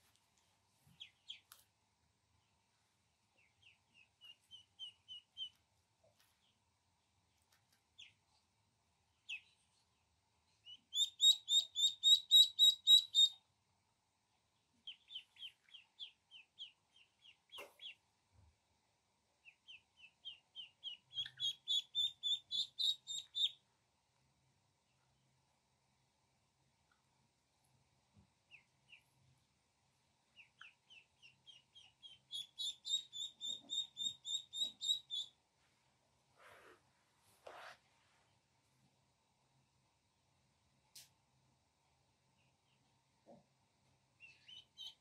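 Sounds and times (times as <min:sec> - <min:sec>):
ducklings peeping: 0:00.9 - 0:01.6, 0:03.4 - 0:05.7, 0:07.8 - 0:08.2, 0:09.2 - 0:09.7, 0:10.6 - 0:13.4, 0:14.8 - 0:18.1, 0:19.4 - 0:23.6, 0:28.4 - 0:29.2, 0:30.3 - 0:35.4, 0:44.2 - 0:45.0.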